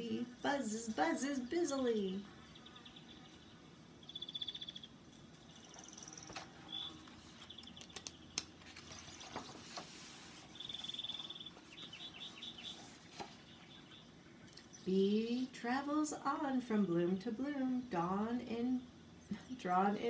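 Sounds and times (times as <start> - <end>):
birds chirping trills: 0.0 - 20.0
book pages turning: 6.0 - 13.6.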